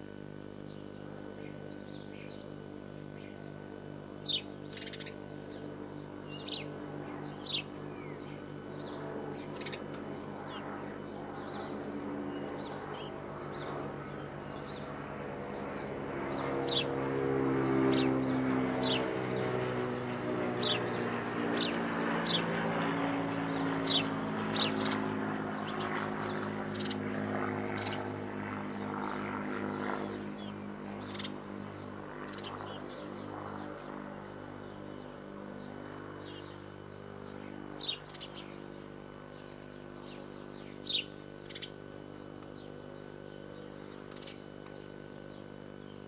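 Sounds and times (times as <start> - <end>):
high bird chirps: 4.2 - 5.2, 30.4 - 31.4, 40.6 - 41.8.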